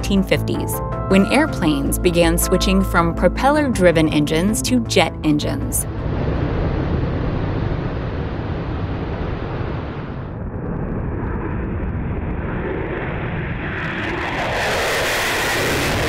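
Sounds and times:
jet engine roaring: 5.9s - 16.0s.

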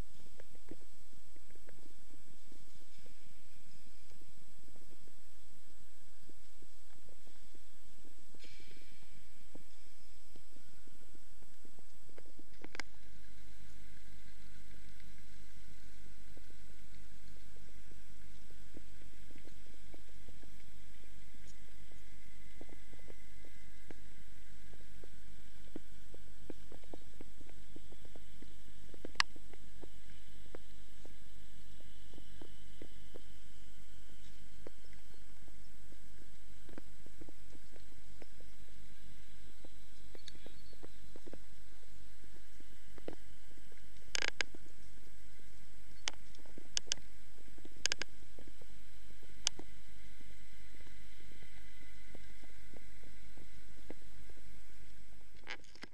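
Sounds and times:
low rumble with faint hum: 0.0s - 55.9s
soft ticks: 11.4s - 33.4s, 39.6s - 41.5s, 42.6s - 45.0s, 45.9s - 49.8s.

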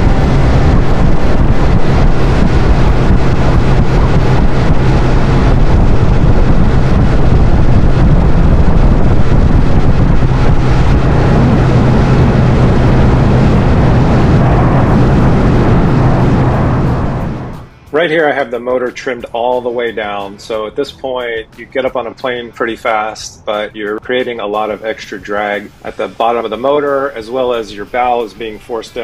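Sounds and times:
hull rushing through water: 0.0s - 17.7s
outboard motor drone: 0.0s - 17.7s
wind buffeting microphone: 0.0s - 17.7s.

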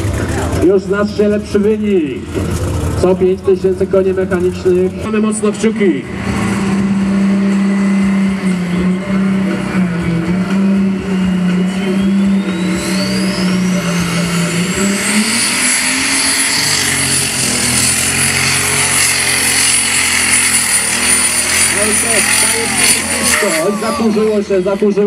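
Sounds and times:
high rising whine: 0.0s - 25.0s
tractor engine running flat out: 0.0s - 25.0s.

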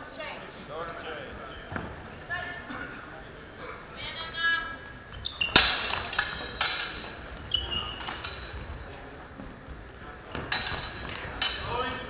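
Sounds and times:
steel swords clashing: 5.5s - 7.2s, 7.9s - 8.5s.

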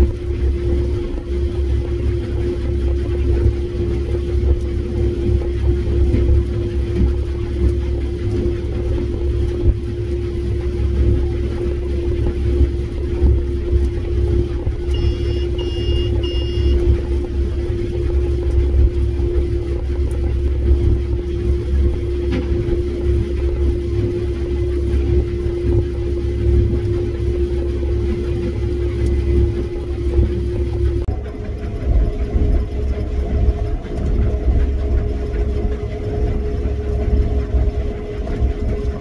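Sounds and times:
combine harvester rumbling: 6.0s - 24.4s
short electronic beeps: 14.9s - 16.8s.

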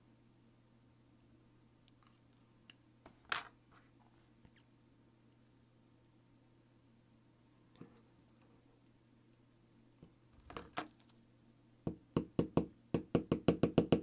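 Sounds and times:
small metal parts clinking: 10.4s - 11.2s.

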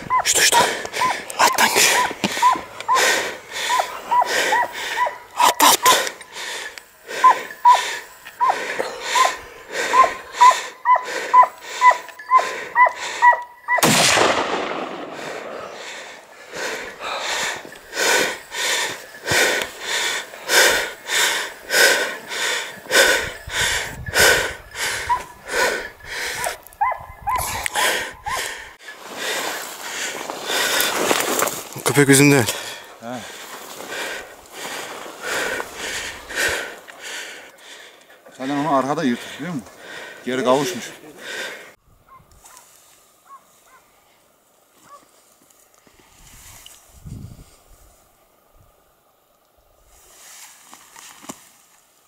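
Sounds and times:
hounds barking: 0.0s - 6.2s, 7.1s - 13.9s, 24.8s - 28.7s, 43.2s - 44.0s, 44.8s - 45.1s
sharp crack with echo: 13.8s - 15.8s.

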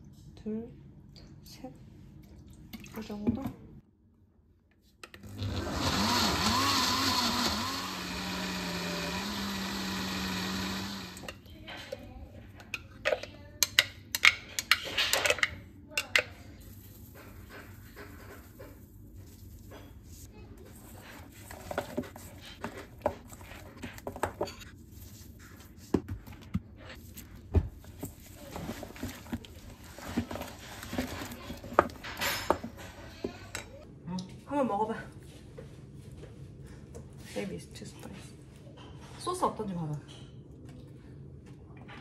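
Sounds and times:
blender motor running: 5.2s - 11.3s.

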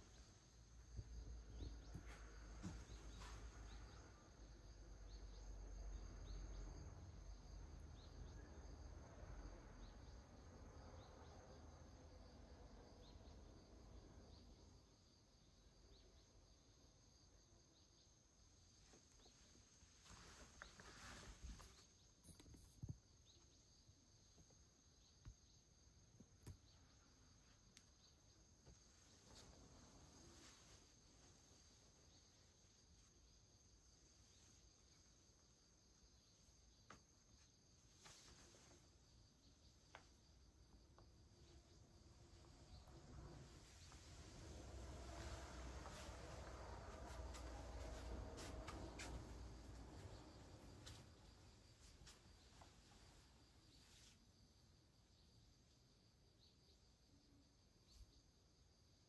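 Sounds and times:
low rumble: 41.8s - 51.4s.

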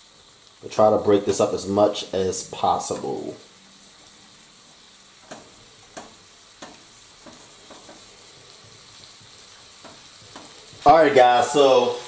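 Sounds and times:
sausage sizzling in a skillet: 0.0s - 12.0s
wooden spoon tapping and scraping pan: 5.2s - 10.9s.

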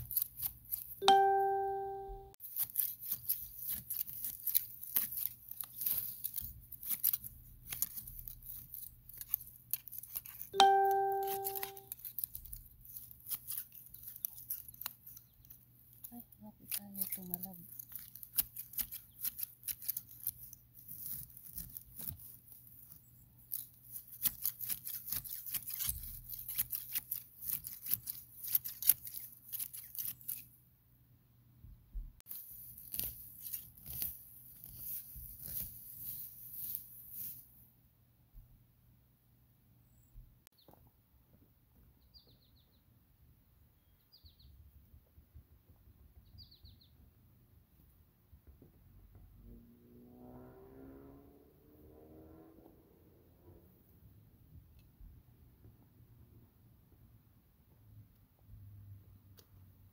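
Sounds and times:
garden shears snipping grass: 0.0s - 30.5s, 32.3s - 37.4s.

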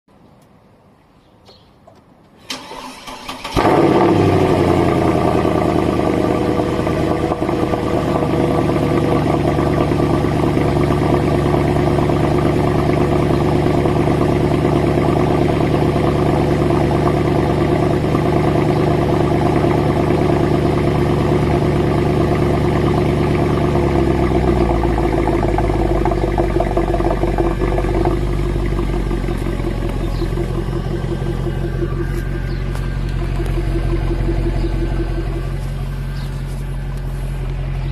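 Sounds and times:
starter motor cranking: 2.5s - 4.4s
car engine idling: 2.5s - 37.9s.

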